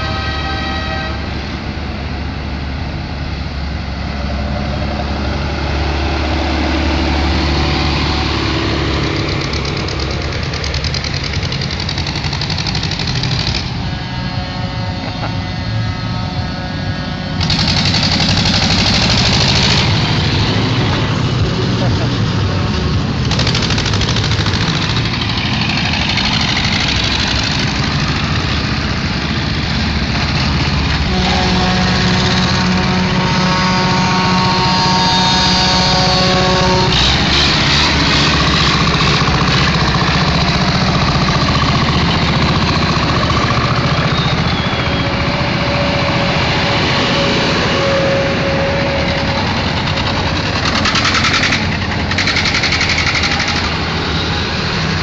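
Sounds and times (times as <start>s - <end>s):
tractor diesel engines: 0.0s - 55.0s
steady pitched tone: 13.6s - 17.8s.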